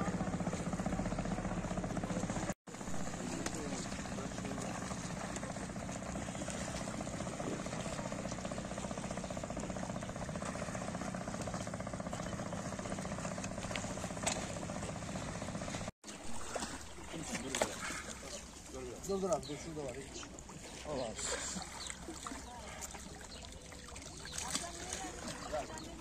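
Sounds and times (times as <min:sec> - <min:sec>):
engine idling: 0:00.0 - 0:15.9.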